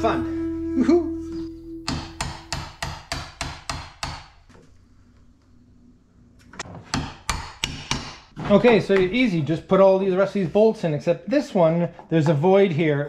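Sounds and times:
hammer striking metal bolt: 1.9s - 4.3s.

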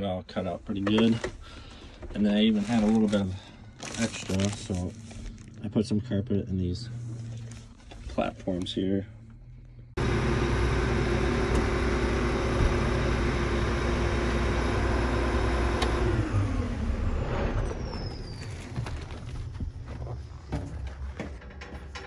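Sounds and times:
diesel engine running: 3.4s - 18.2s
turbocharger whine: 8.6s - 18.4s
click: 15.8s - 16.0s.

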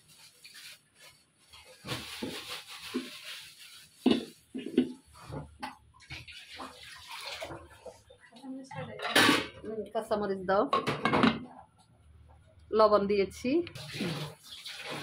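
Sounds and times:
water splashing in a pan: 6.0s - 8.1s, 13.7s - 15.0s.

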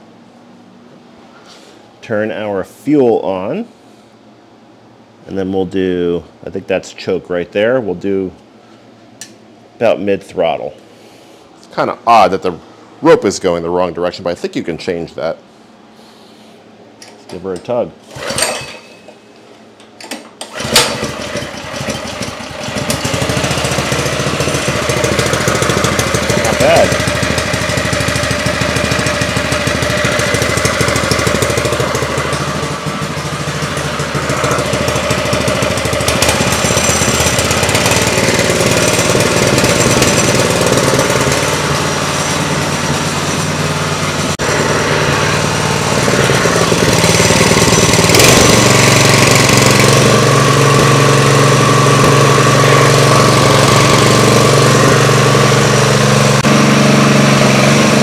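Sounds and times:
small engine running: 18.1s - 18.6s, 20.5s - 58.0s.

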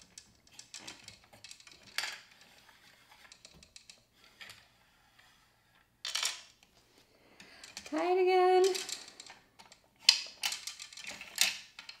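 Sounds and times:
plastic gears clicking: 7.4s - 8.0s, 8.6s - 12.0s.

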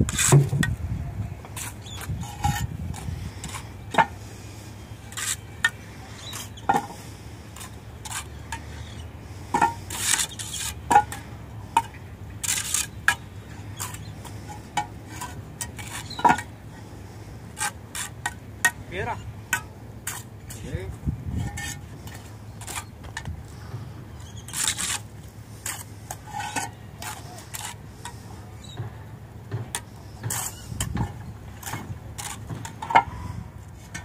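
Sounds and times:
trowels clinking and scraping: 24.3s - 28.8s.

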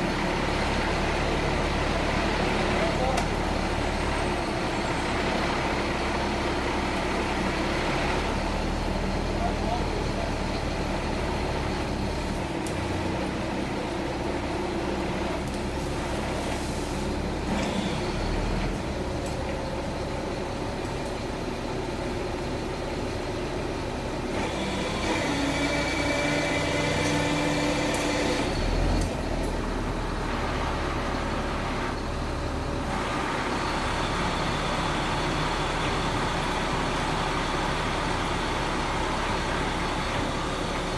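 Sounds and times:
heavy truck engine running: 0.0s - 40.9s.

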